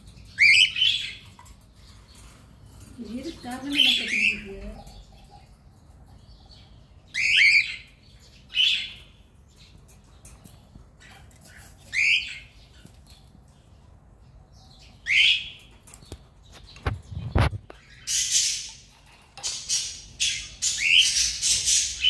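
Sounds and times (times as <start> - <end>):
cockatiels calling: 0.3 - 1.5, 3.1 - 5.0, 7.1 - 9.2, 11.0 - 12.9, 15.0 - 15.7, 16.8 - 22.0.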